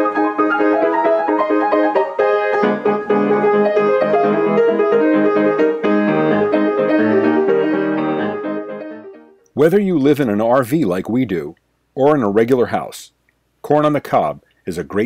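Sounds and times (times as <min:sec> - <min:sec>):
piano intro music: 0:00.0 - 0:09.4.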